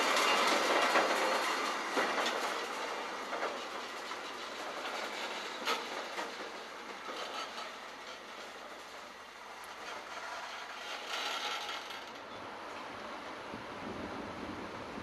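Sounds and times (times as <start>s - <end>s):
wheels clicking over rail joints: 0.0s - 13.6s
railway wagons rolling past: 0.0s - 15.0s.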